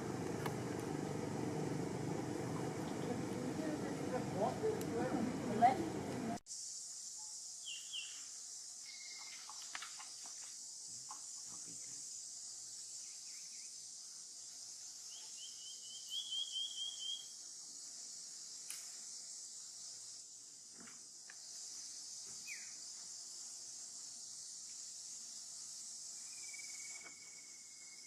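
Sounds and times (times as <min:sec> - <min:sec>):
high-pitched insect drone: 0:06.4 - 0:28.0.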